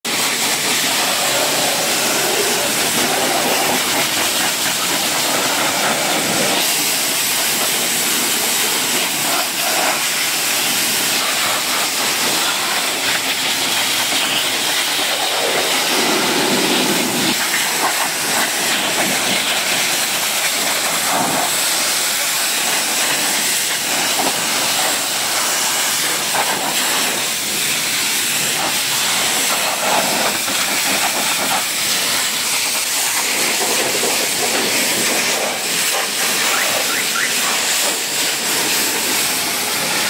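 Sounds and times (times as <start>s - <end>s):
pressure washer spraying: 0.1s - 40.0s.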